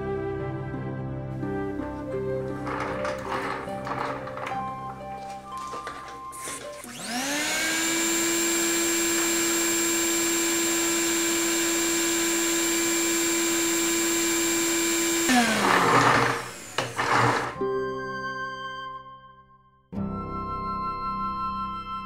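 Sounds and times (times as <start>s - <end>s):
vacuum cleaner motor whine: 2.6s - 4.6s, 5.5s - 17.6s.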